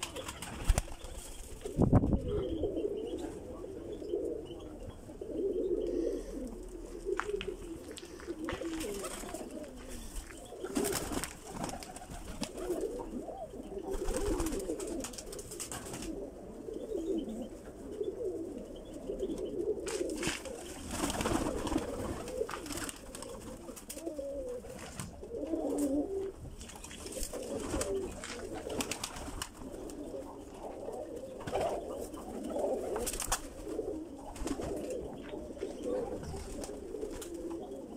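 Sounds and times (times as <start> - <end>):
wing flaps: 0.0 - 2.0
pigeons cooing: 0.0 - 37.9.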